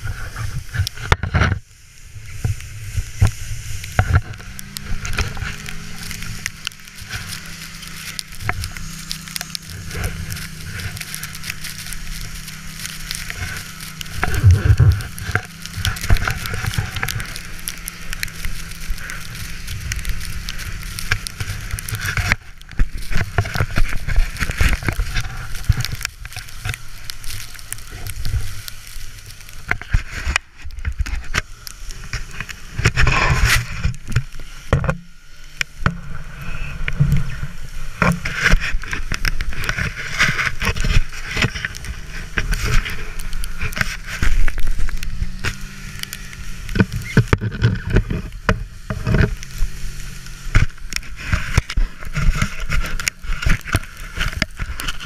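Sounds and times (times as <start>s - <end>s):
sled scraping over snow: 0.0s - 55.0s
snowmobile engine running: 0.0s - 55.0s.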